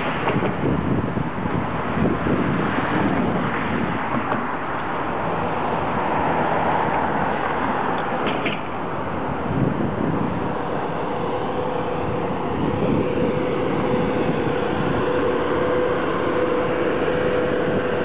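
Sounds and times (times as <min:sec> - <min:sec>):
city traffic: 0:00.0 - 0:18.0
steady hum: 0:09.3 - 0:18.0.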